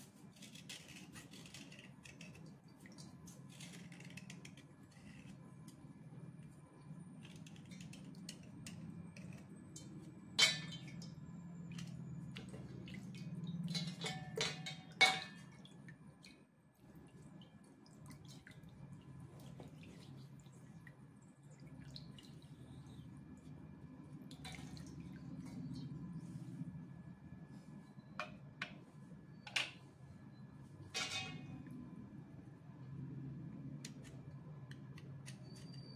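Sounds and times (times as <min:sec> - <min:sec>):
water dripping and splashing: 0:02.1 - 0:04.4, 0:09.8 - 0:23.6, 0:24.2 - 0:25.9.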